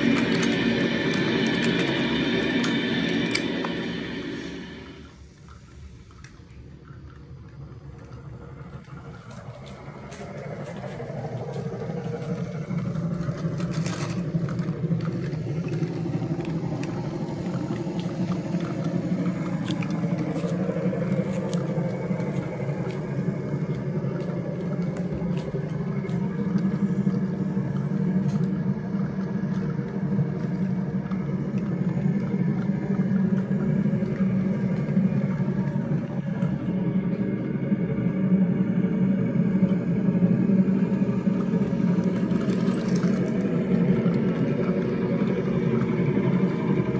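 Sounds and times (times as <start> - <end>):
toy train motor whirring: 8.8 - 27.2, 41.8 - 46.9.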